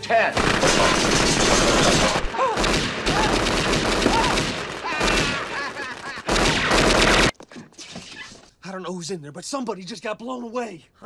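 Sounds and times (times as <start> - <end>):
submachine gun fire: 0.4 - 7.3
person crying out: 4.0 - 6.1.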